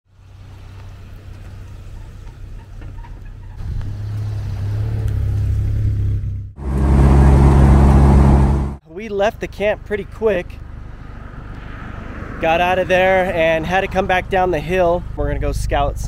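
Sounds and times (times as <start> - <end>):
wind and road hiss: 0.1 - 2.9, 10.6 - 15.2
car engine humming: 0.1 - 8.8.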